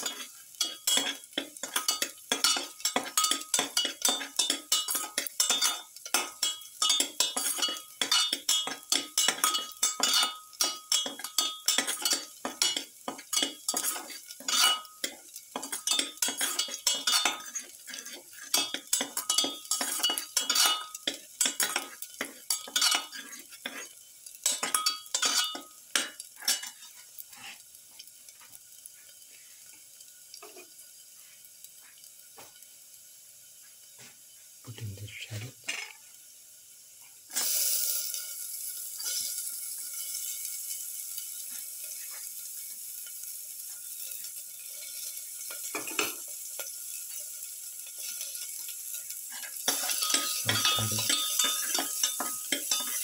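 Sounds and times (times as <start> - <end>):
spatula scraping metal pan: 0.0 - 27.6, 47.9 - 53.0
oil sizzling: 0.0 - 53.0.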